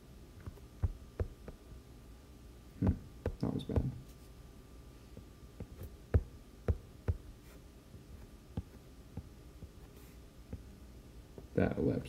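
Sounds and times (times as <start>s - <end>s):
stylus tapping on glass screen: 0.4s - 1.6s, 3.3s - 4.0s.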